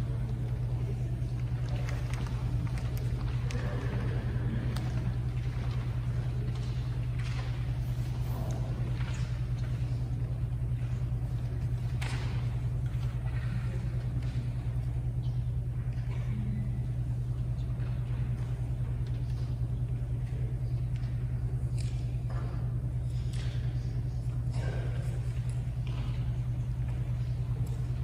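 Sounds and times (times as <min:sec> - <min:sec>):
low hum: 0:00.0 - 0:28.0.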